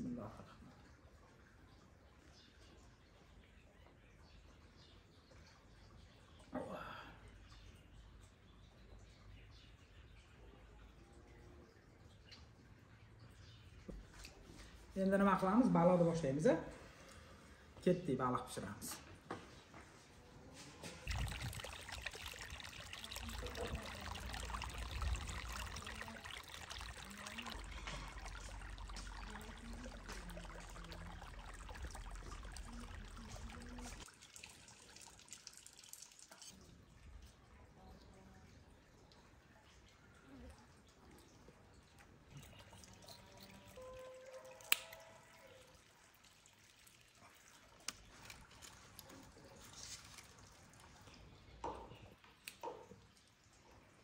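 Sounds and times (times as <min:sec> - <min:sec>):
water trickling in channels: 0:00.0 - 0:54.0
water pouring from pipe: 0:20.7 - 0:54.0.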